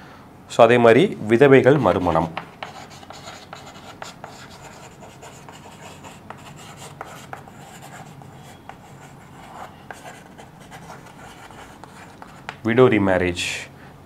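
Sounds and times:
chalk scratching on chalkboard: 1.6s - 12.6s
chalk tapping on board: 1.6s - 12.7s.

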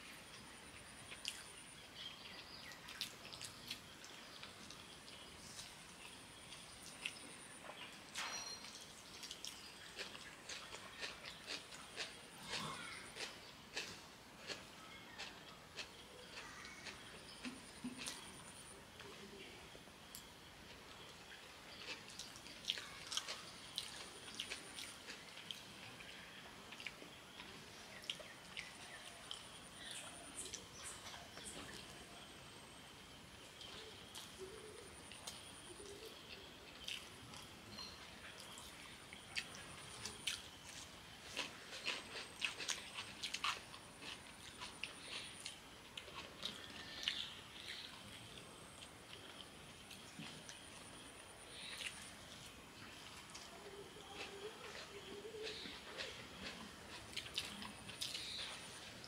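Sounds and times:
faint background hiss: 0.0s - 59.0s
chewing and lip smacks: 9.0s - 18.3s, 38.3s - 47.9s, 53.1s - 58.8s.

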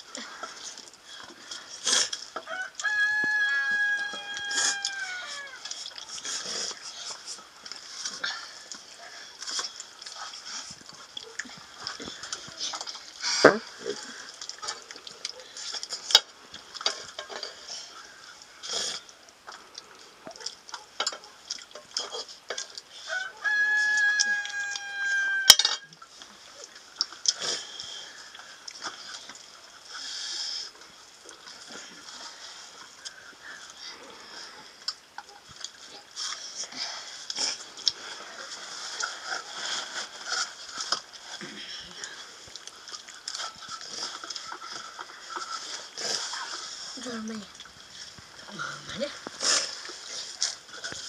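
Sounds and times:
rooster crowing: 2.4s - 5.6s, 23.0s - 25.9s.

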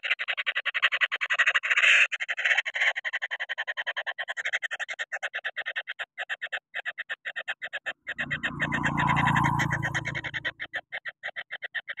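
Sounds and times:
low rumbling noise: 8.1s - 10.6s.

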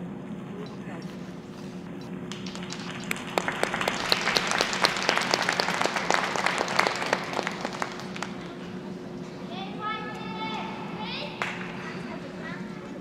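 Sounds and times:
audience clapping: 2.3s - 8.6s.

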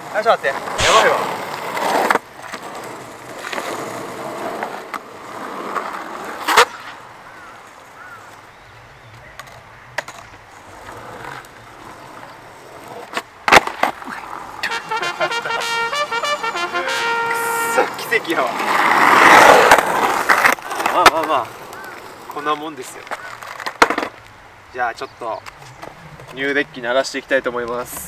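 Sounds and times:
skateboard rolling on asphalt: 0.0s - 15.5s, 17.0s - 28.0s
skateboard clacking: 0.1s - 7.0s, 9.1s - 24.2s.

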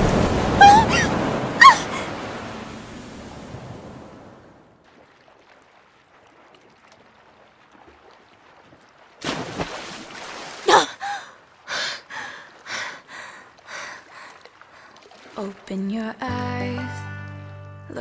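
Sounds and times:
woman gasping: 10.7s - 14.2s.

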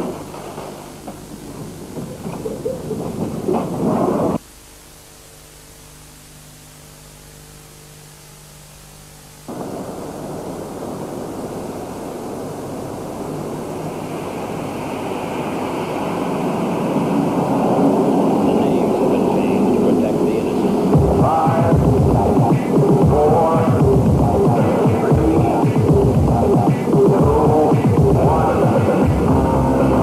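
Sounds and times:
loud rumbling noise: 0.0s - 4.4s, 9.4s - 30.0s
train running on rails: 0.0s - 4.4s, 12.5s - 30.0s
faint steady hum: 0.0s - 30.0s.

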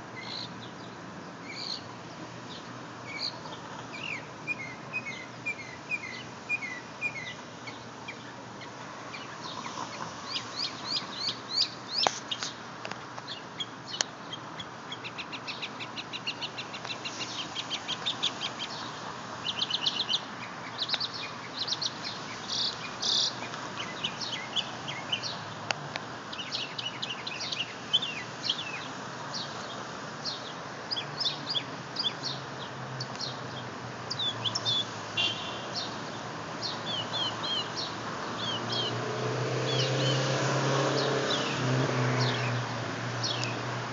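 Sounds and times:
mockingbird singing: 3.1s - 12.6s, 13.3s - 25.4s, 26.3s - 32.4s, 33.0s - 35.9s, 36.6s - 39.0s.

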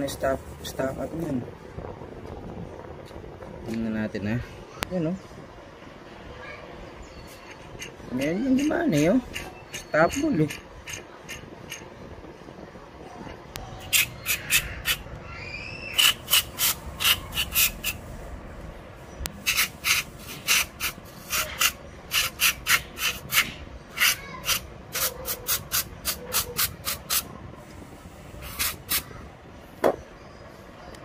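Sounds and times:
aerosol spray hissing: 19.4s - 23.4s, 24.5s - 29.1s.

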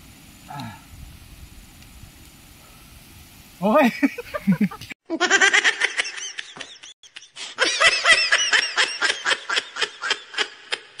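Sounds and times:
person giggling: 4.0s - 11.0s.

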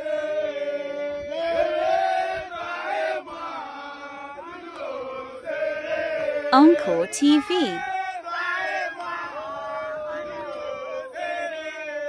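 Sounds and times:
group of voices chanting: 6.0s - 7.9s.

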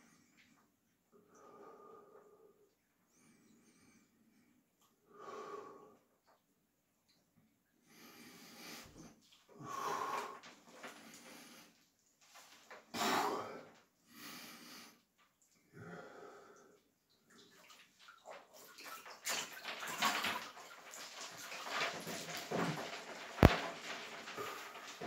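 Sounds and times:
man breathing heavily: 9.6s - 11.7s, 12.9s - 15.0s
water sloshing and splashing: 17.1s - 25.0s.

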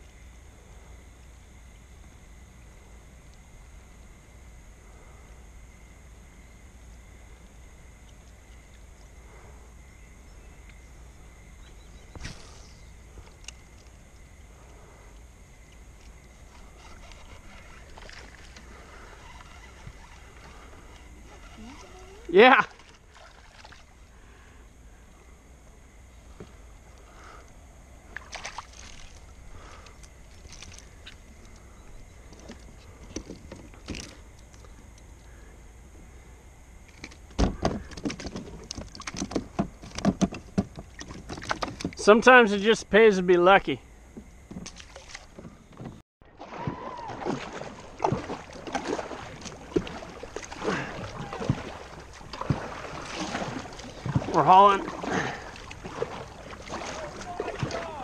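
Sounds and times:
kayak paddle splashing in water: 15.7s - 24.5s, 28.0s - 31.5s, 37.0s - 42.2s, 44.1s - 58.0s
faint wind rumble: 45.3s - 58.0s.

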